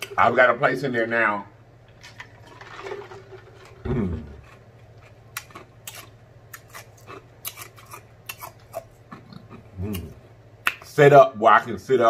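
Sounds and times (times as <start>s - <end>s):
short low vocal sound: 3.8s - 4.4s.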